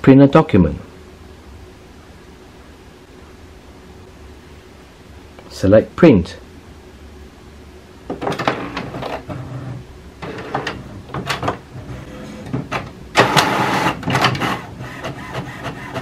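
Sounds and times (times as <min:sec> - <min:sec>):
inkjet printer whirring and clicking: 0:08.4 - 0:16.0.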